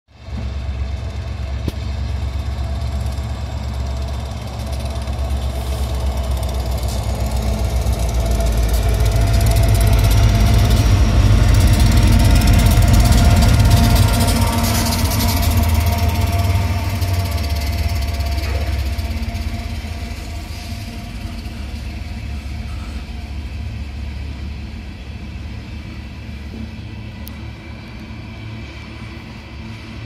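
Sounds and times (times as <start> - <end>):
diesel locomotives rumbling: 0.1 - 30.0.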